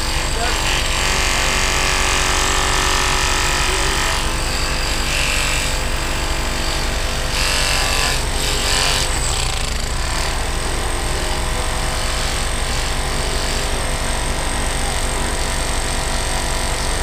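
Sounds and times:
hydraulic whine: 0.0 - 17.0.

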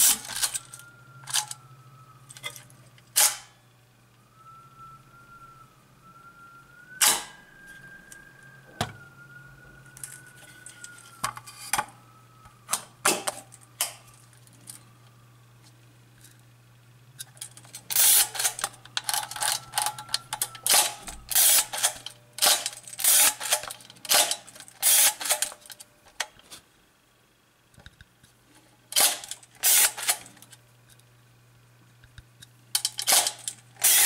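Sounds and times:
camera shutter mechanical clacks: 33.0 - 34.0.

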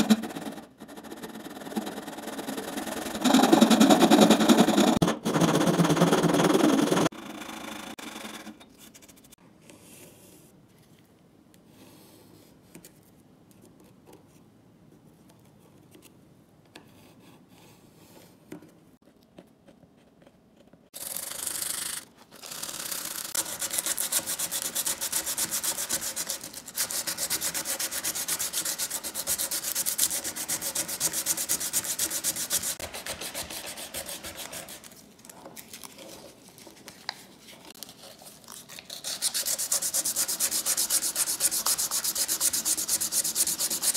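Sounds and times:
sandpaper rubbing on wood: 23.2 - 34.9, 38.8 - 43.9.

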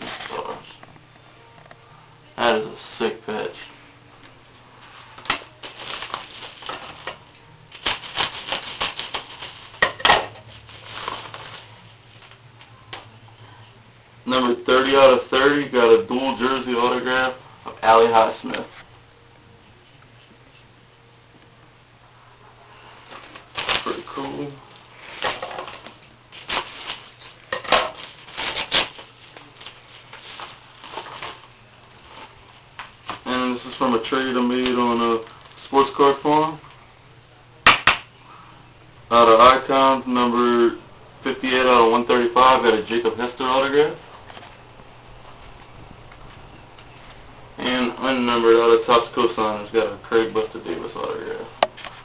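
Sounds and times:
envelope crinkling and tearing: 5.4 - 7.1, 7.7 - 9.8, 10.7 - 11.7, 23.2 - 24.4, 25.2 - 27.4, 28.0 - 32.4.

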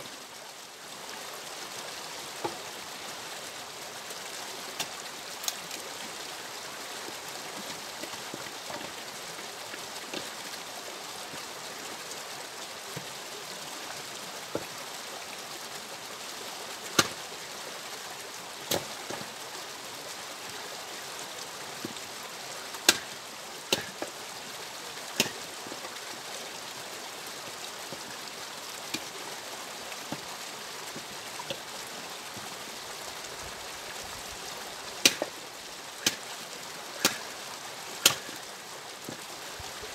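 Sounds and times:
steady hiss: 0.0 - 39.9
axe splitting logs: 17.0 - 17.2, 22.9 - 24.0, 25.2 - 25.4, 35.0 - 35.3, 36.0 - 36.3, 37.0 - 37.3, 38.0 - 38.4
split wood pieces knocking: 25.2 - 25.4, 35.0 - 35.3, 37.0 - 37.3, 38.0 - 38.4.

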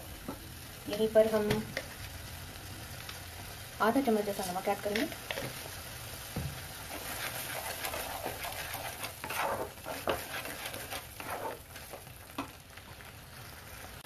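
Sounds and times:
masala sizzling in a pan: 0.0 - 14.0
spatula scraping a pan: 6.9 - 12.5.

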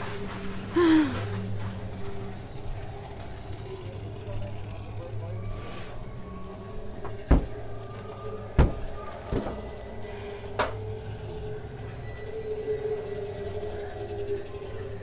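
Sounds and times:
low hum: 0.0 - 15.0
sharp knocks: 7.3 - 7.6, 8.6 - 9.5.

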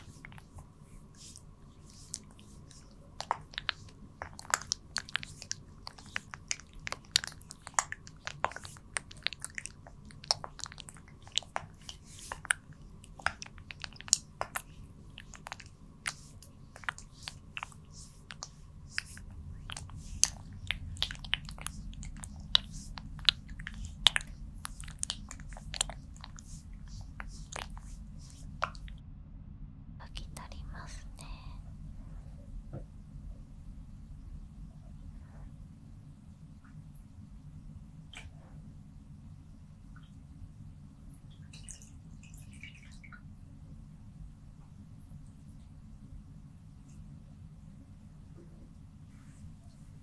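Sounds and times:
oiled hands massaging wet clicks: 0.0 - 29.0.

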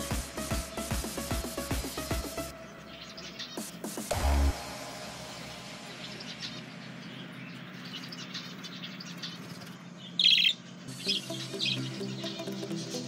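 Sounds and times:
budgerigars chirping: 6.4 - 13.0.

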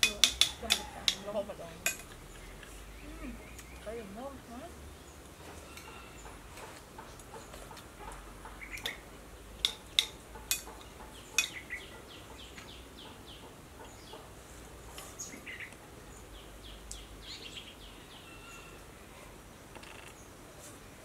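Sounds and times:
birds chirping: 0.0 - 21.0
spoons clinking on plates: 9.6 - 10.7.

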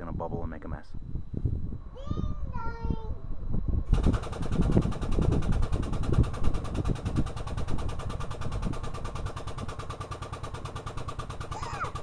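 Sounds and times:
motor running with rapid pulse: 3.8 - 12.0.

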